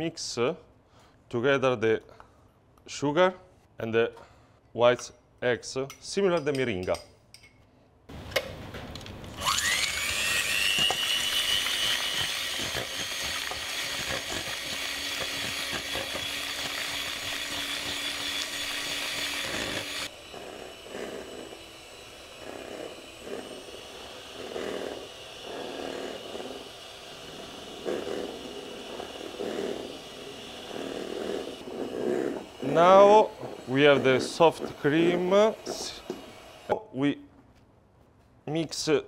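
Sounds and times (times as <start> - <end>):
electric hand mixer whipping: 9.3 - 36.7.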